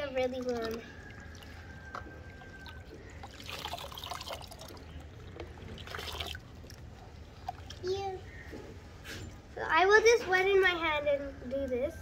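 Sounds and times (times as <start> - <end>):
water pouring and splashing: 0.0 - 7.9.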